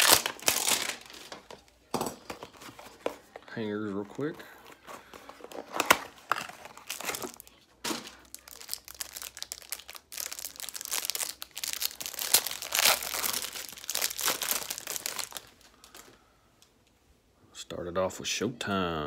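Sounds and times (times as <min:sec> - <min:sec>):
plastic wrapping crinkling and tearing: 0:00.0 - 0:03.1, 0:04.7 - 0:16.2.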